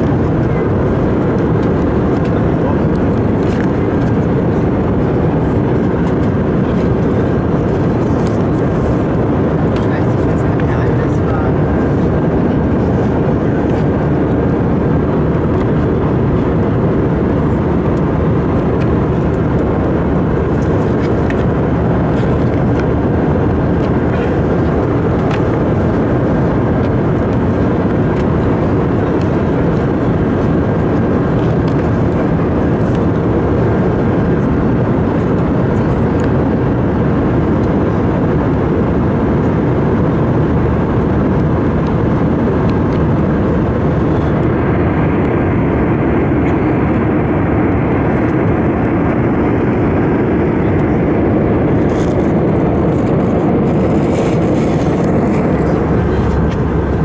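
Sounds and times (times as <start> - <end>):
airliner cabin rumble: 0.0 - 57.0
faint steady whine: 0.0 - 57.0.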